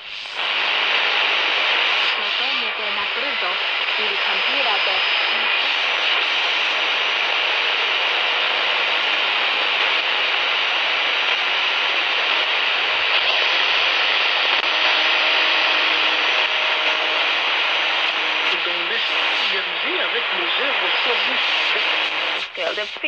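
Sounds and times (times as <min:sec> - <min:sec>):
radio static hiss: 0:00.0 - 0:23.0.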